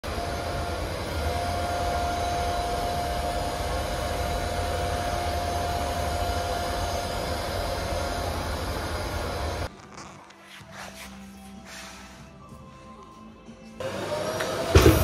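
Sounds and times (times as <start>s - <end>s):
machine rumble and hiss: 0.0s - 9.7s
steady machine whine: 0.0s - 9.7s, 13.8s - 15.0s.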